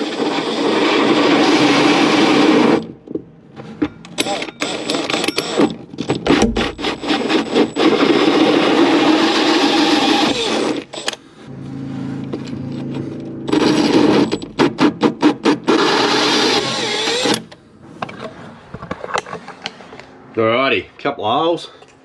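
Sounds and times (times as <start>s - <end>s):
cordless drill motor whine: 0.0s - 2.9s, 6.8s - 11.2s, 15.7s - 17.5s
hole saw grinding through wood: 0.0s - 2.9s, 4.1s - 11.2s, 12.2s - 17.5s.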